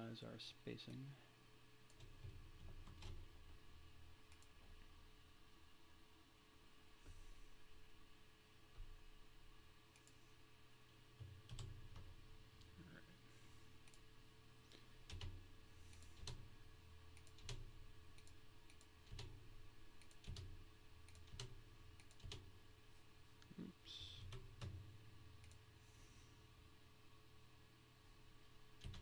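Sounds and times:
low steady hum: 0:00.0 - 0:29.0
keyboard keystrokes: 0:15.0 - 0:16.4, 0:17.2 - 0:19.4, 0:20.0 - 0:22.4.

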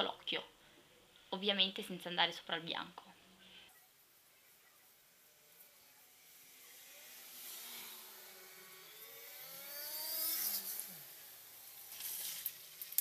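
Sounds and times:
motor vehicle driving past: 0:04.8 - 0:12.8.

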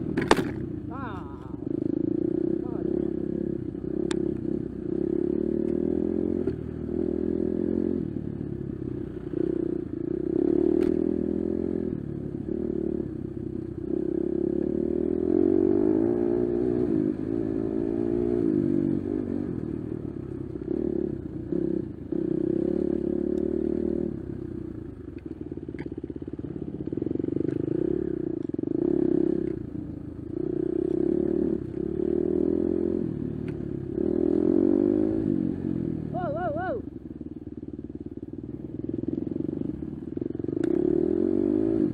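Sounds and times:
bike clattering and scraping: 0:00.0 - 0:00.7
dirt bike engine revving: 0:13.9 - 0:24.3, 0:30.3 - 0:33.3, 0:33.9 - 0:36.8, 0:38.9 - 0:41.9.

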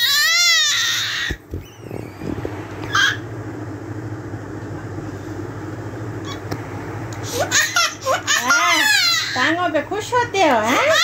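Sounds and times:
infant crying: 0:00.0 - 0:01.4
steady low hum: 0:00.0 - 0:11.0.

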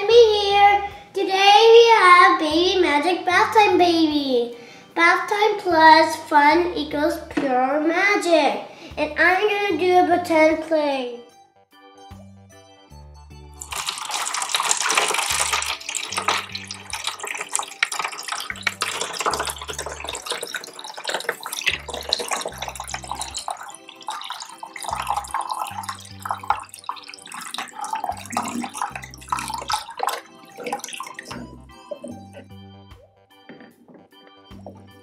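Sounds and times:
water pouring into plastic tub: 0:13.6 - 0:32.4.

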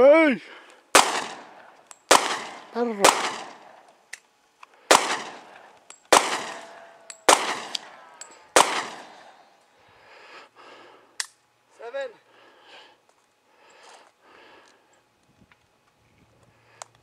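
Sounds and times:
gunshots with echo: 0:01.0 - 0:03.7, 0:04.9 - 0:09.3.

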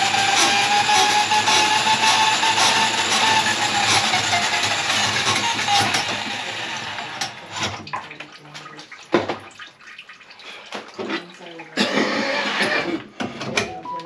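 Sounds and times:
water sloshing in a sink: 0:06.4 - 0:13.7
water splashing: 0:07.4 - 0:11.8.

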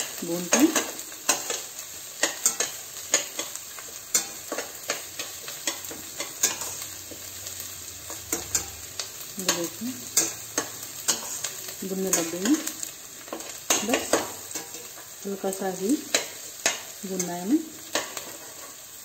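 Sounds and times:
onions sizzling in butter: 0:00.0 - 0:19.0
spatula scraping metal pan: 0:00.5 - 0:07.0, 0:09.4 - 0:11.5.

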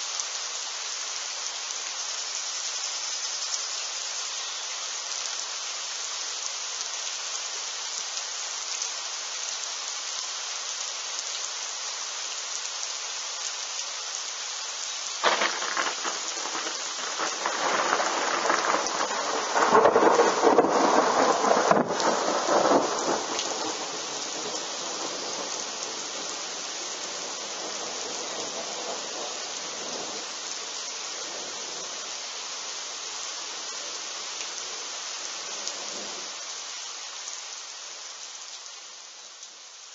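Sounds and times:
steady rain: 0:00.0 - 0:39.9
thunder crack and rumble: 0:15.2 - 0:23.6.

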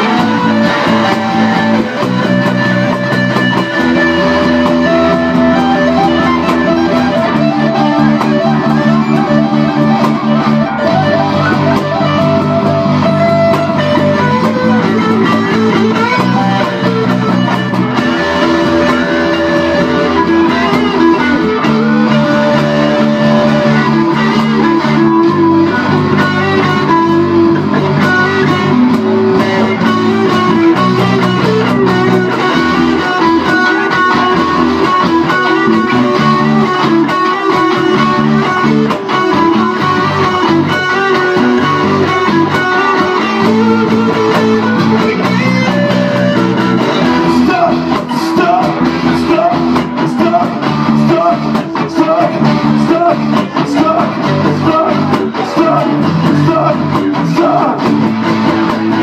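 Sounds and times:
bass guitar: 0:00.0 - 0:59.0
guitar chords: 0:00.0 - 0:59.0
live band playing: 0:00.0 - 0:59.0.

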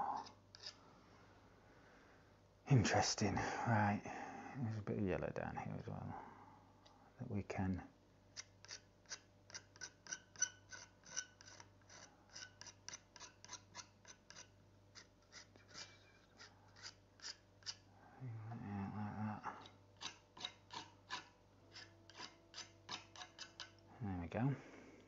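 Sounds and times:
palette knife scraping canvas: 0:08.4 - 0:17.8, 0:20.0 - 0:23.8.

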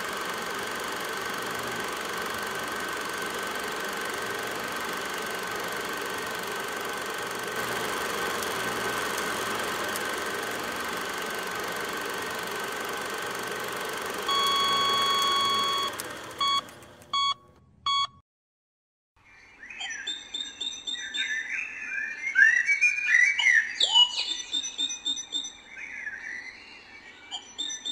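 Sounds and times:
short beeps: 0:17.2 - 0:18.2.

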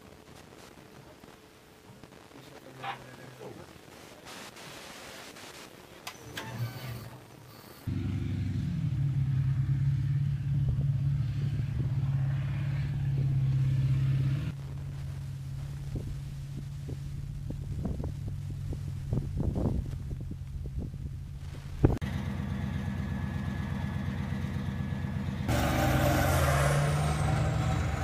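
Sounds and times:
diesel engine drone: 0:07.9 - 0:28.0.

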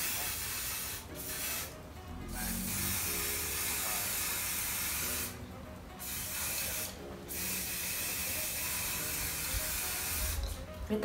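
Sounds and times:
aerosol spray hissing: 0:00.0 - 0:01.7, 0:02.4 - 0:05.4, 0:06.0 - 0:10.6.

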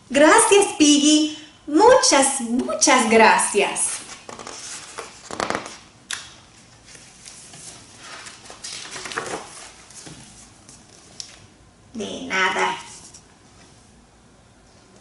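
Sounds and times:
book pages rustling: 0:03.9 - 0:05.8, 0:06.6 - 0:11.5.

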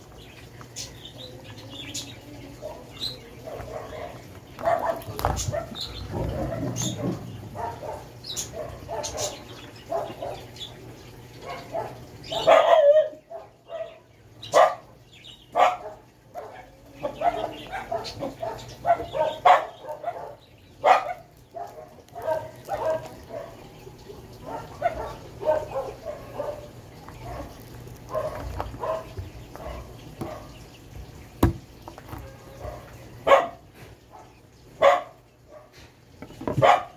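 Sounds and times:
dog barking and yipping: 0:02.6 - 0:10.5, 0:11.4 - 0:14.9, 0:15.5 - 0:23.6, 0:24.4 - 0:30.6, 0:32.6 - 0:35.8, 0:36.5 - 0:36.9
spiky husk cracking: 0:21.0 - 0:23.5, 0:26.7 - 0:30.4.

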